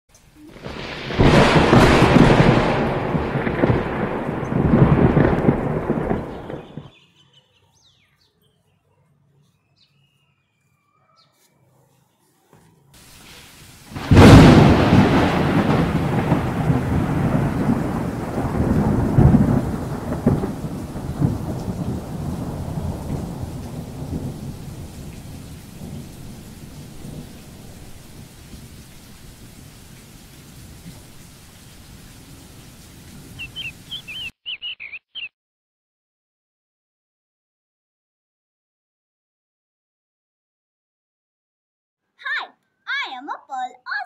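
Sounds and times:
rain hiss: 0:00.1 - 0:06.8, 0:13.0 - 0:34.3
thunder crack and rumble: 0:00.4 - 0:06.9, 0:13.9 - 0:29.8.

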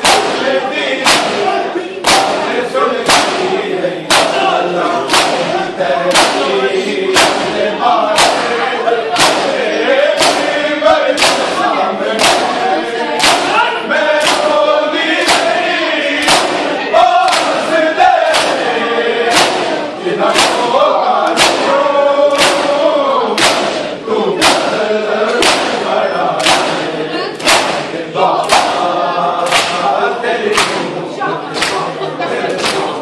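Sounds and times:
group of voices chanting: 0:00.0 - 0:33.0
hands striking bare chests: 0:01.0 - 0:01.4, 0:02.0 - 0:02.4, 0:04.1 - 0:04.5, 0:05.1 - 0:05.5, 0:06.1 - 0:06.5, 0:07.2 - 0:07.5, 0:08.2 - 0:08.5, 0:09.2 - 0:09.6, 0:10.2 - 0:10.5, 0:11.2 - 0:11.6, 0:12.2 - 0:12.6, 0:13.2 - 0:13.6, 0:16.2 - 0:16.7, 0:17.3 - 0:17.6, 0:18.3 - 0:18.6, 0:19.3 - 0:20.7, 0:21.3 - 0:21.7, 0:22.4 - 0:22.8, 0:23.4 - 0:23.8, 0:25.4 - 0:25.8, 0:26.4 - 0:26.8, 0:27.4 - 0:28.8, 0:29.5 - 0:29.8.

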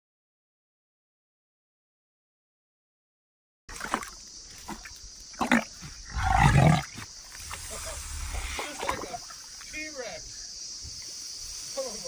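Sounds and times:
crocodile deep growl: 0:05.4 - 0:07.0
steady high hiss: 0:06.9 - 0:12.0.

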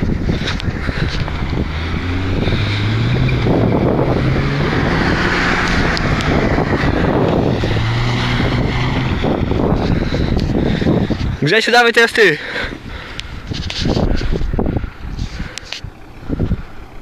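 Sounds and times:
engine revving hard: 0:00.8 - 0:11.1.

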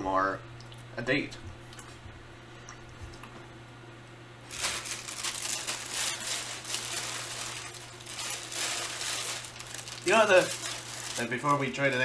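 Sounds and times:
candy packaging crinkling: 0:04.5 - 0:12.0.

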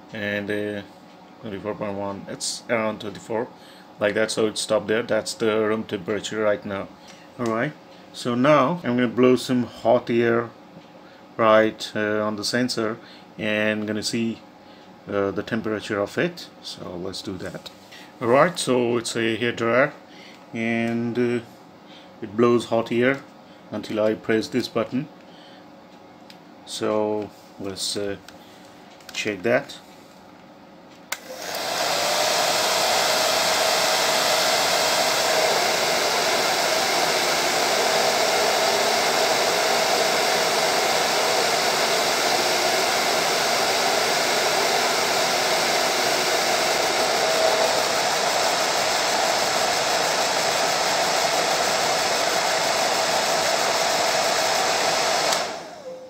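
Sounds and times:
hair dryer switch click: 0:31.1 - 0:32.0, 0:55.2 - 0:55.7
hair dryer blowing: 0:31.1 - 0:56.0.

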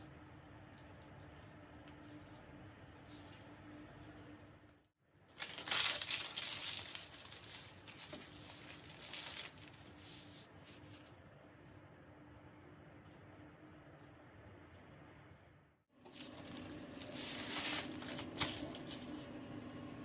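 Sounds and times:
baking paper crinkling: 0:05.3 - 0:11.1, 0:16.0 - 0:19.2.

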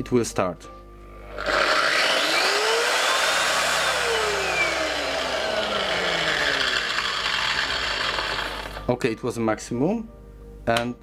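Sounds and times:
sander motor whining: 0:01.2 - 0:08.8.

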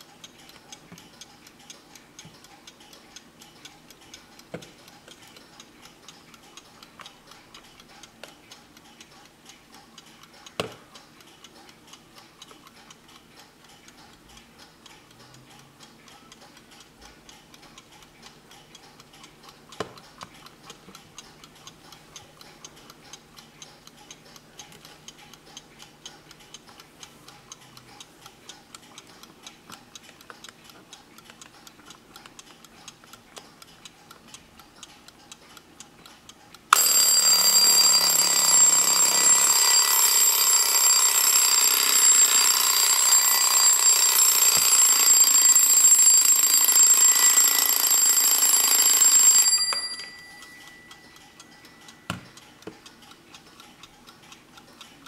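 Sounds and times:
alarm clock ticking: 0:00.0 - 0:55.0
alarm bell ringing: 0:36.7 - 0:52.1.

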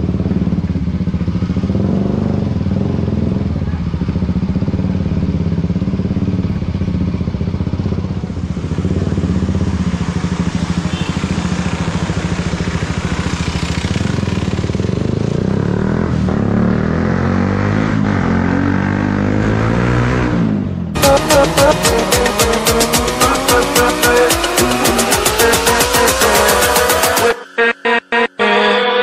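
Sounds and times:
motorcycle engine running: 0:00.0 - 0:19.0, 0:20.9 - 0:27.4.

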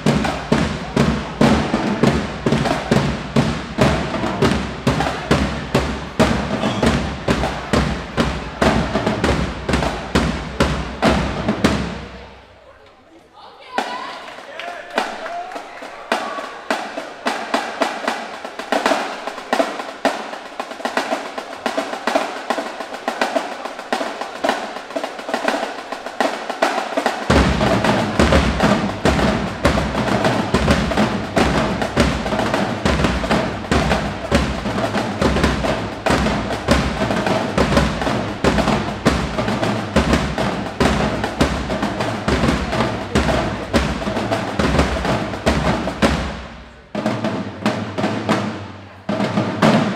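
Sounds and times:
bass drums beating: 0:00.0 - 0:12.1, 0:27.3 - 0:48.4
snare drums playing cadence: 0:00.0 - 0:12.3, 0:13.8 - 0:49.9.

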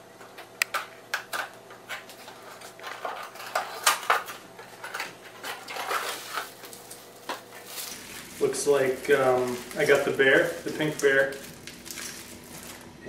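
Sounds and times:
cardboard box rustling and crinkling: 0:04.8 - 0:12.8.

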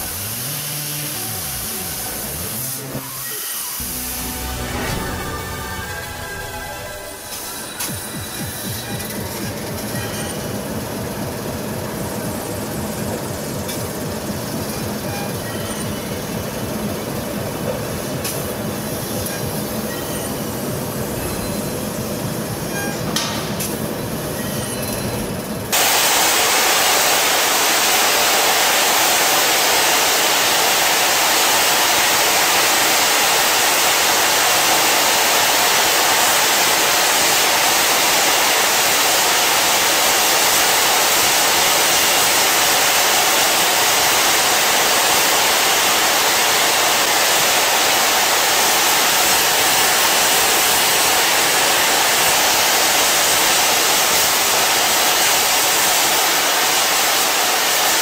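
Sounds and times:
cutting torch hissing: 0:00.0 - 0:10.4, 0:24.2 - 0:58.0
low machine rumble: 0:03.8 - 0:09.9.

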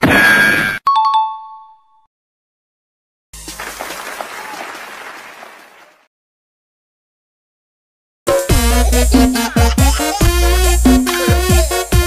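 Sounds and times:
cheering and applause: 0:03.4 - 0:06.1.

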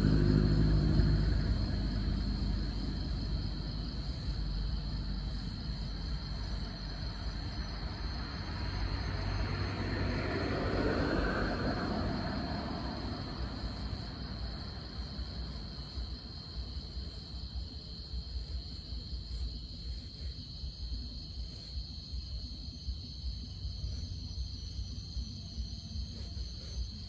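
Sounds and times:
low rumble: 0:00.0 - 0:16.6
crickets trilling: 0:00.0 - 0:27.0.

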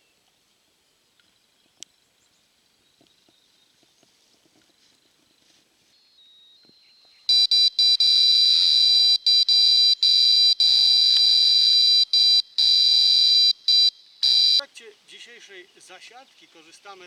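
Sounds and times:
high-pitched bite alarm tone: 0:07.3 - 0:14.7.

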